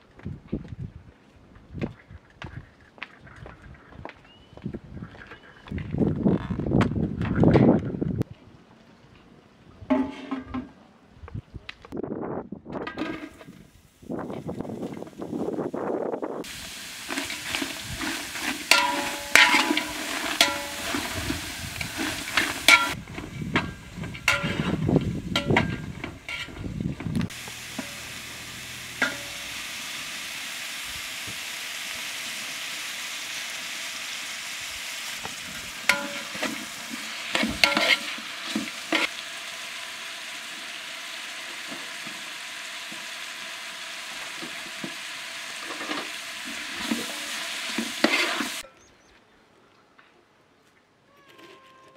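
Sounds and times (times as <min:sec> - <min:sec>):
onions sizzling in a pot: 0:13.3 - 0:48.6
metal ladle clinking against pot: 0:18.7 - 0:21.2, 0:22.3 - 0:23.0, 0:35.9 - 0:36.5.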